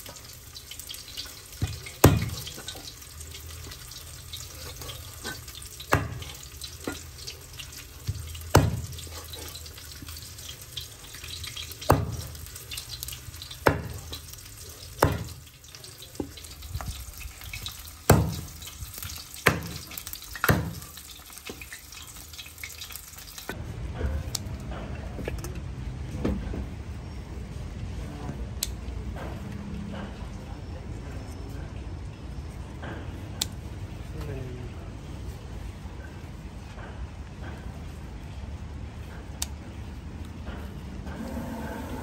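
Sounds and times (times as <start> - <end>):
cleaver chopping on wooden board: 8.5 - 8.9, 13.6 - 14.0, 15.0 - 15.4, 18.1 - 18.4, 19.5 - 19.8, 20.4 - 20.8.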